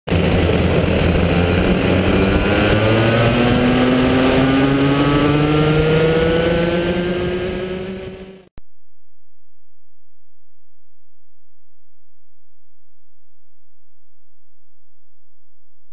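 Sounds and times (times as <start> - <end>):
kart engines accelerating: 0.1 - 8.5.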